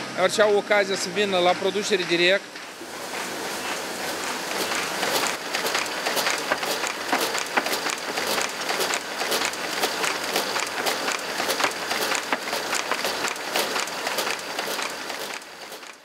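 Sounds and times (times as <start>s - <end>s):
machinery clattering with sharp clicks: 1.4s - 16.0s.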